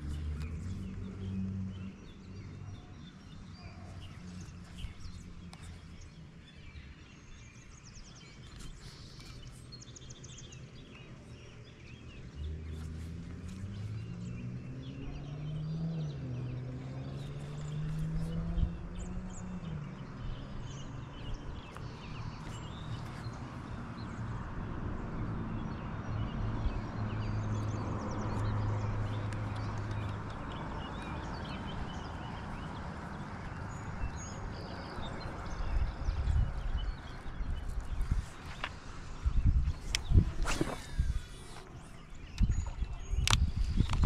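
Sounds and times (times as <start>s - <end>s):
outdoor background noise: 0.0s - 44.0s.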